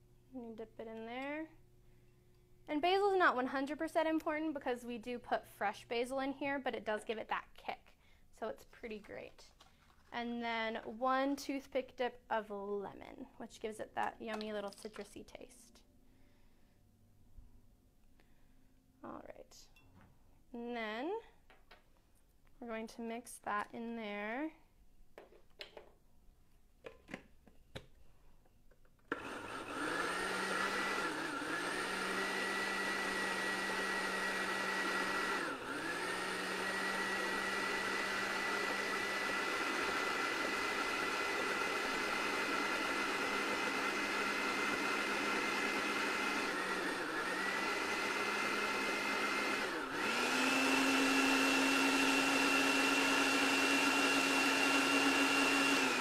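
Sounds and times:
blender motor whining: 29.1s - 56.0s.

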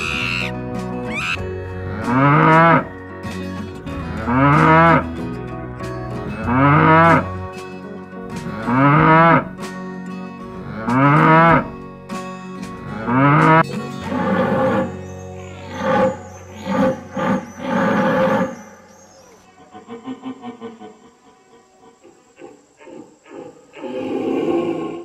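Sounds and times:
cow mooing: 0.0s - 0.5s, 1.1s - 2.9s, 4.2s - 5.1s, 6.4s - 7.3s, 8.4s - 9.5s, 10.6s - 11.7s, 12.9s - 15.0s, 15.6s - 18.6s
background music with sustained tones: 0.0s - 20.2s.

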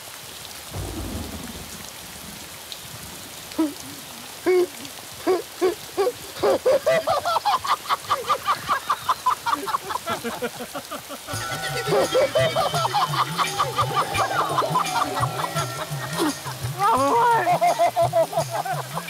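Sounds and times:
steady rain: 0.0s - 19.0s
thunder rumble: 0.7s - 3.9s.

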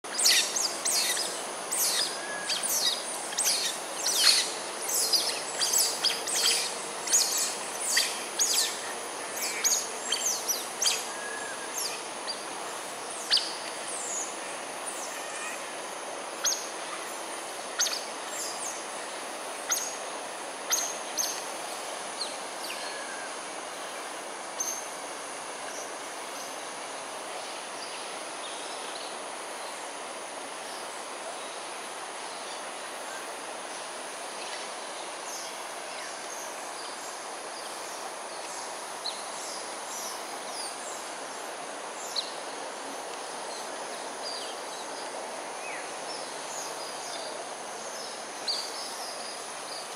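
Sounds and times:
steady background hiss: 0.0s - 49.9s.

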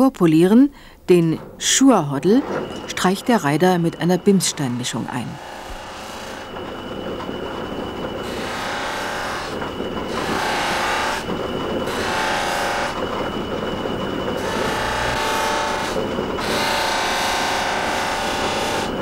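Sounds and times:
compound scraping on wheel: 2.2s - 19.0s
polishing wheel whirring: 3.8s - 19.0s.

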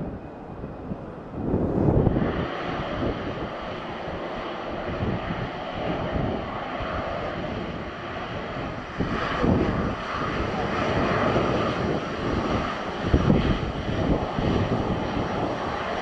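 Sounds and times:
jet engines running: 0.0s - 16.0s.

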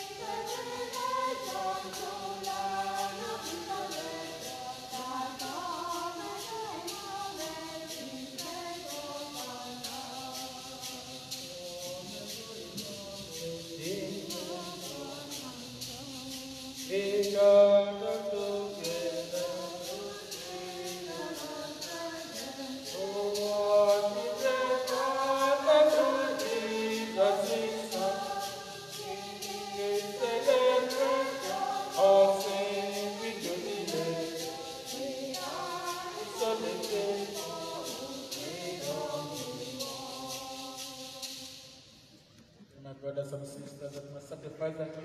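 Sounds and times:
choir singing a hymn: 0.0s - 41.9s
light ticking beat: 11.8s - 41.0s.

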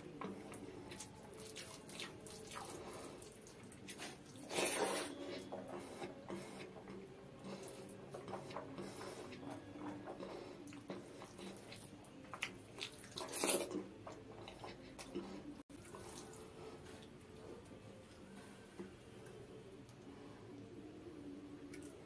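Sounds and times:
fingers squishing through rice: 0.0s - 16.4s
wet chewing: 0.0s - 17.4s.

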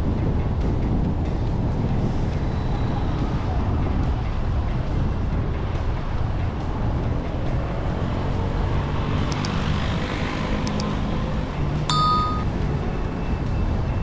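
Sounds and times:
mouse-click sound effects: 9.3s - 9.5s, 10.7s - 10.9s
short bell chime: 11.9s - 12.5s.

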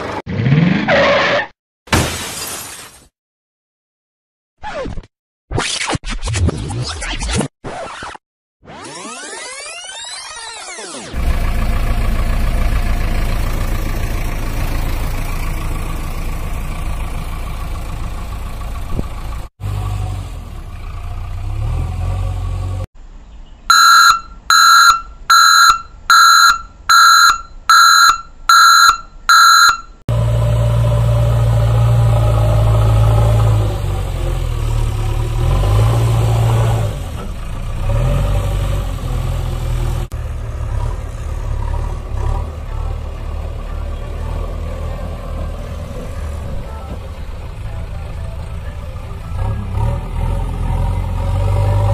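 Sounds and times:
heavy vehicle engine rumble: 11.2s - 23.4s, 30.1s - 51.9s
loud reversing alarm beeps: 23.7s - 30.0s.

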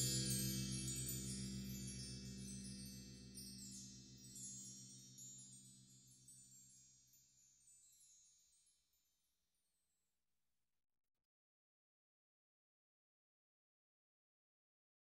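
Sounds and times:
bell-like chime tones: 0.0s - 8.7s.

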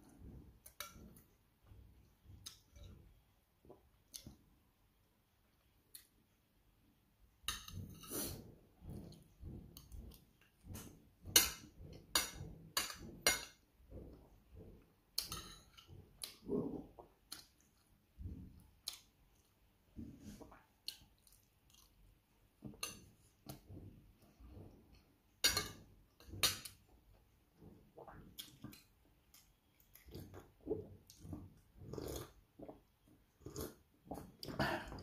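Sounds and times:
chewing and mouth smacking: 20.8s - 22.1s.

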